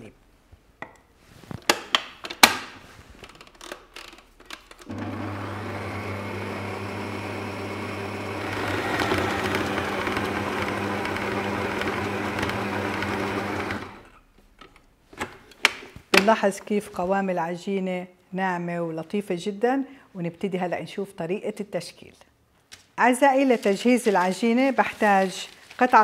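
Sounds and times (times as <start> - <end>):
stand mixer motor humming: 4.9 - 14.0.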